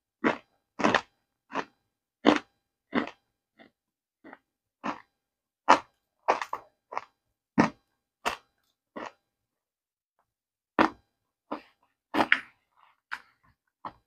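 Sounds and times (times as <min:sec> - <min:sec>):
crunchy chewing: 0:00.2 - 0:09.3.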